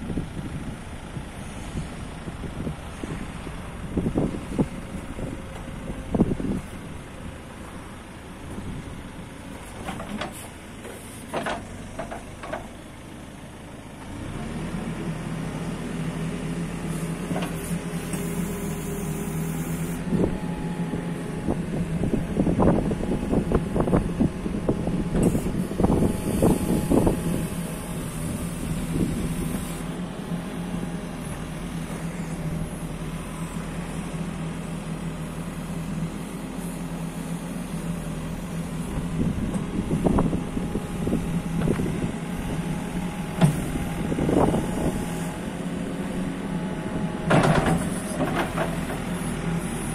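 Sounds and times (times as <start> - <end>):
diesel engine running: 0.0 - 49.9
backhoe arm clunks: 9.6 - 12.8, 43.2 - 44.7, 47.2 - 49.1.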